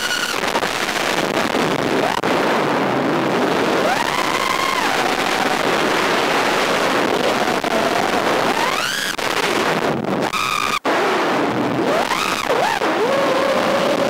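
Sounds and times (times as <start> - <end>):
wind rush: 0.0 - 14.0.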